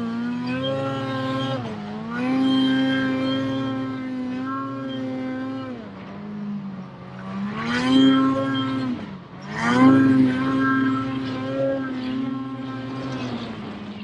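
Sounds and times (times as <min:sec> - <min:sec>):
snowmobile engine revving: 0:00.0 - 0:14.0.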